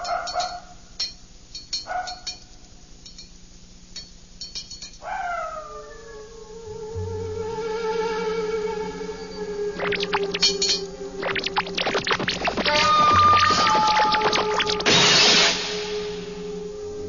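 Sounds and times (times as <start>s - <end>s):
light clinks: 0.0s - 5.0s
animal howling: 5.0s - 14.9s, 15.6s - 17.0s
music with long held tones: 6.2s - 17.0s.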